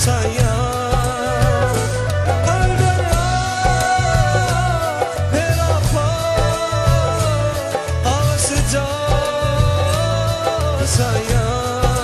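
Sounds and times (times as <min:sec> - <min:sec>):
melodic music with bass beat: 0:00.0 - 0:12.0.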